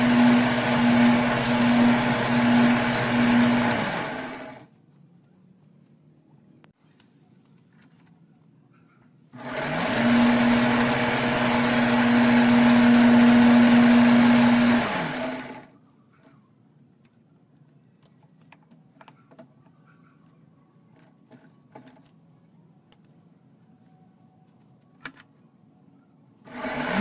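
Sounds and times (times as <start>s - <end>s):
electric motor humming: 0.0s - 4.6s, 9.4s - 15.7s, 26.5s - 27.0s.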